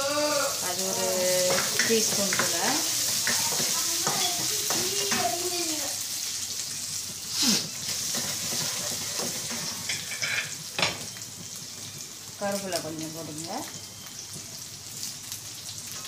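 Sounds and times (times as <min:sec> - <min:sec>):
spatula scraping wok: 0:00.0 - 0:05.6, 0:07.2 - 0:10.6
food sizzling in hot oil: 0:00.0 - 0:16.0.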